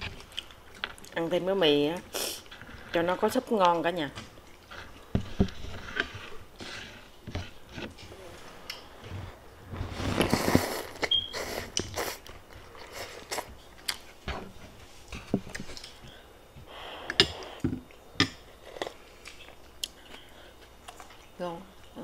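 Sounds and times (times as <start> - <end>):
chewing with mouth clicks: 4.3 - 5.2, 18.8 - 22.0
person slurping noodles: 9.9 - 12.2.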